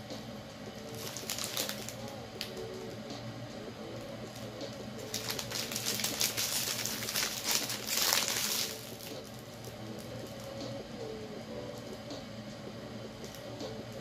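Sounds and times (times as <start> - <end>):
faint background music: 0.0 - 14.0
crackly rustling: 0.7 - 2.9, 4.0 - 10.7.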